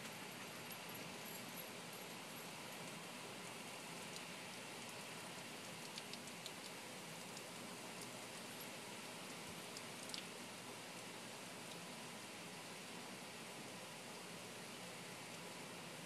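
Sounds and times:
sharp ticks of raindrops: 0:00.3 - 0:13.1.

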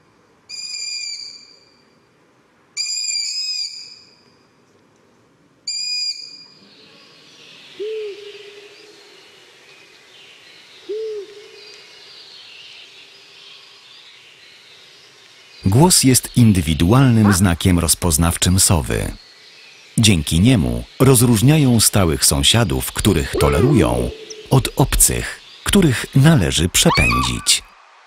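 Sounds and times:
faint hiss: 0:06.6 - 0:28.0
low owl hoots: 0:07.8 - 0:08.9, 0:10.8 - 0:11.6, 0:23.3 - 0:24.8, 0:26.9 - 0:27.6
owl chick squeaky screeches: 0:23.3 - 0:24.5, 0:26.9 - 0:27.6.

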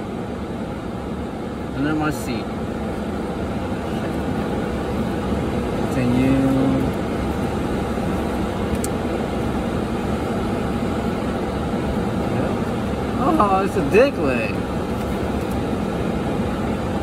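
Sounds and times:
car air conditioning blowing: 0:00.0 - 0:17.0.

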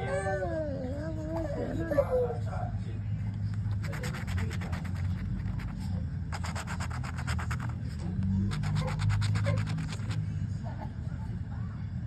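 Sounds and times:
coin scratching a scratch-off ticket: 0:03.6 - 0:10.3.

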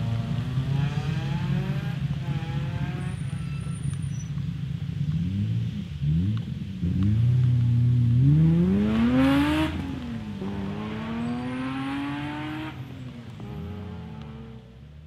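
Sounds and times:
car engine accelerating hard: 0:05.0 - 0:14.6.

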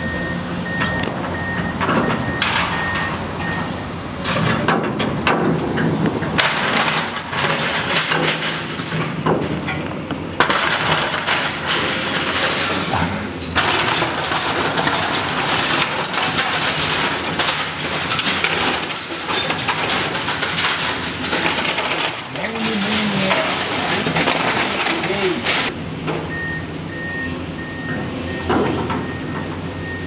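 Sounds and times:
metal and wood crunching: 0:00.8 - 0:25.8
loud crashes: 0:04.2 - 0:09.6, 0:10.4 - 0:25.7.

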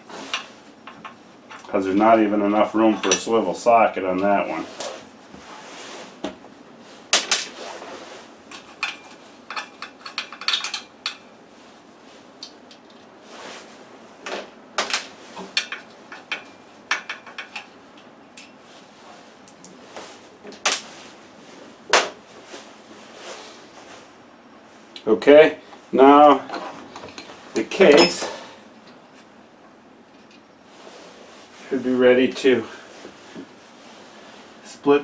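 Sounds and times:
metal hand tools clinking: 0:08.5 - 0:11.3, 0:27.0 - 0:28.5.

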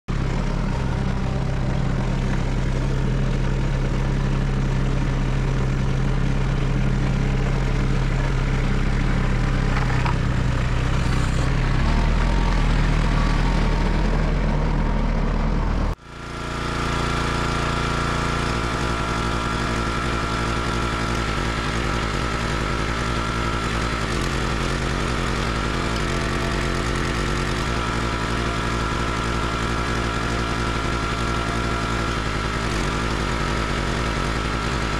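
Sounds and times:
log splitter gas engine running: 0:00.1 - 0:34.9
tractor engine running: 0:00.1 - 0:34.9.

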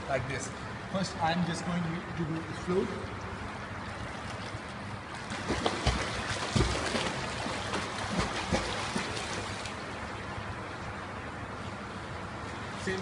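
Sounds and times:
churned water wash: 0:00.0 - 0:13.0
sharp water splashes: 0:03.0 - 0:10.6.

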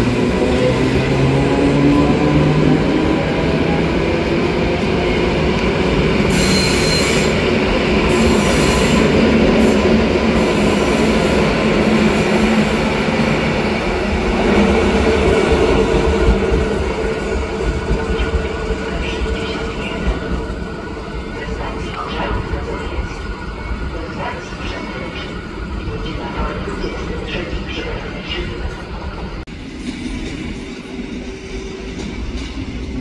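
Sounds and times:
train wheels rumbling on rail: 0:00.0 - 0:33.0
high-pitched wheel squeals: 0:06.3 - 0:07.4.

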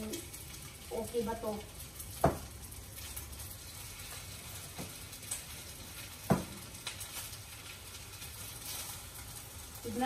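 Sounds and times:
rice sizzling in hot oil: 0:00.0 - 0:10.0.

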